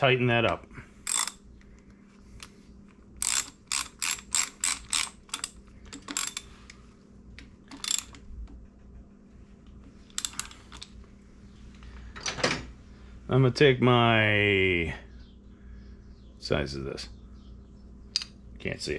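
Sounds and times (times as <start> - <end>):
hand ratchet clicking: 1.0 - 1.4, 3.2 - 6.4, 7.7 - 8.2, 10.1 - 10.6.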